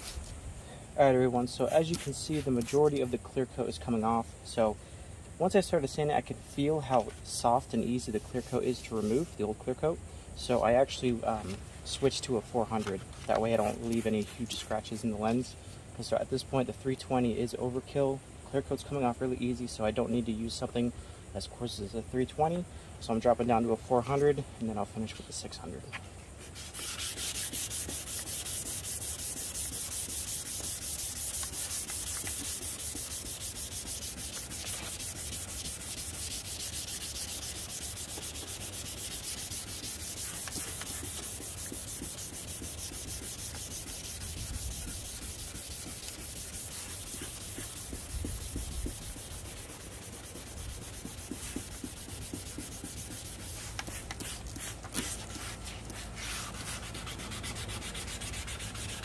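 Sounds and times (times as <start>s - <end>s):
sandpaper sanding plastic: 0.0s - 0.3s, 1.6s - 3.2s, 7.9s - 9.4s, 12.6s - 15.3s, 26.4s - 59.0s.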